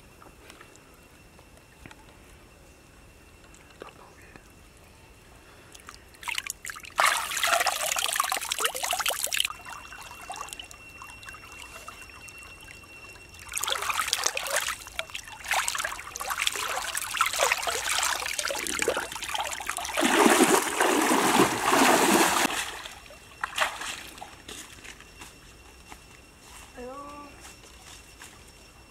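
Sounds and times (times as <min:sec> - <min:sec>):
water splashing and trickling: 0:05.7 - 0:24.4.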